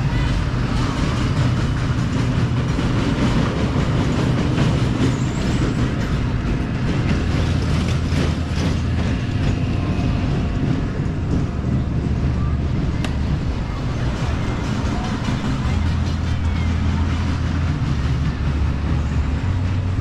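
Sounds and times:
low mechanical rumble: 0.0s - 20.0s
rattling and clatter: 0.3s - 20.0s.

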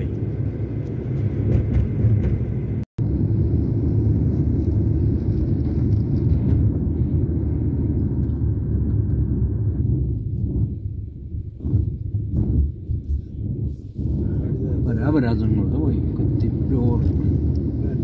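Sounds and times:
car engine and tyres rumbling: 0.0s - 18.0s.

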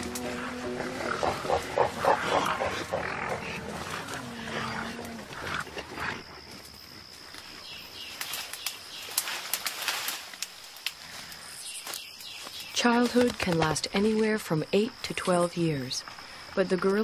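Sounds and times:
gorilla grunting call: 0.0s - 5.5s
twigs and leaves rustling: 6.5s - 14.2s.

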